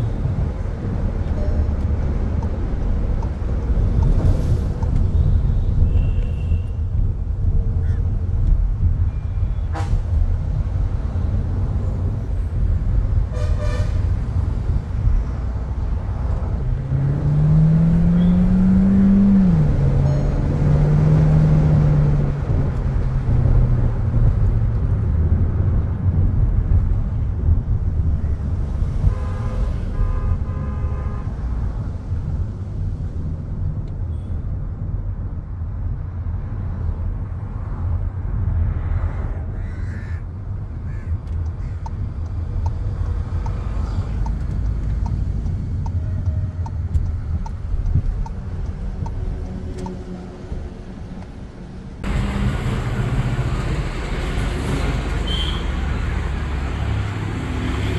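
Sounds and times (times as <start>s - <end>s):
road rumble: 0.0s - 57.9s
car horns tooting: 13.3s - 14.1s, 29.0s - 31.4s, 55.2s - 55.8s
car engine accelerating: 16.2s - 24.0s.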